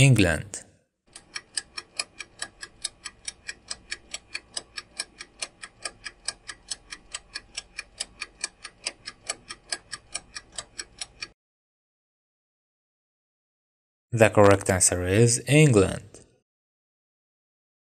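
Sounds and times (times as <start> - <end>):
clock-like timer ticking: 1.1 - 11.4.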